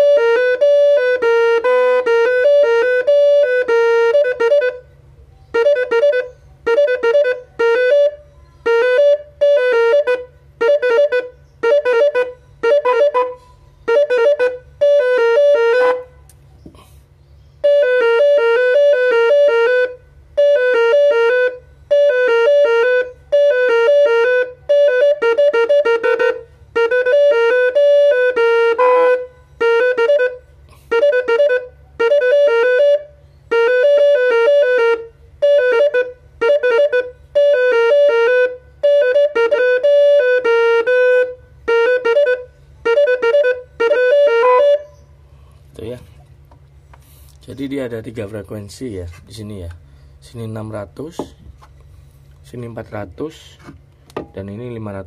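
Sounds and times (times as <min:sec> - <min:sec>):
electric horn tooting melody: 0:00.0 - 0:16.3, 0:17.6 - 0:45.1.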